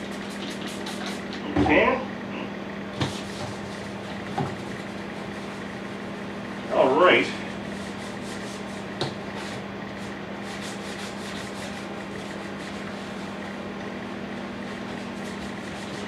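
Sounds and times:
scouring pad scrubbing plastic: 0:00.0 - 0:01.4, 0:03.0 - 0:05.7, 0:10.4 - 0:13.6, 0:14.6 - 0:16.0
microwave humming: 0:00.0 - 0:16.0.

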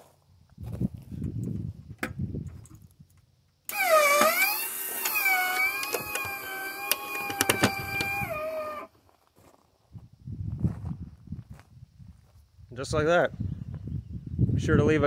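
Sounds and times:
sharp mechanical clicks: 0:03.7 - 0:08.4
electric motor whining: 0:03.7 - 0:08.9.

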